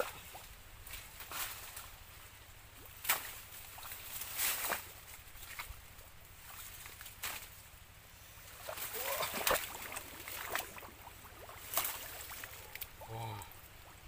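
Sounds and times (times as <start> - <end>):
dead leaves crackling and rustling: 0.8 - 7.8
wet sloshing: 8.4 - 14.0.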